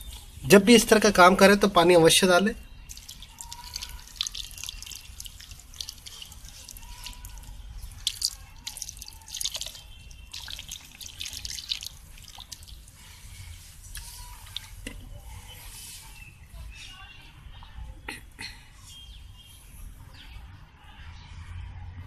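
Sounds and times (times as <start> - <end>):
water pouring onto soil: 2.9 - 14.8.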